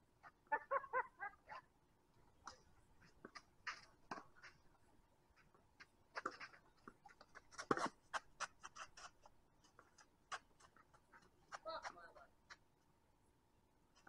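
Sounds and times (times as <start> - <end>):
rackets striking tennis ball: 2.4 - 4.7
tennis ball bouncing on court: 3.2 - 4.6.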